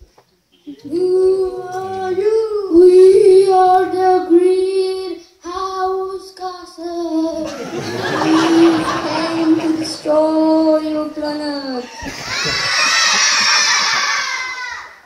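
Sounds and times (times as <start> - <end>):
children singing held notes: 0.7 - 4.0, 7.4 - 14.8.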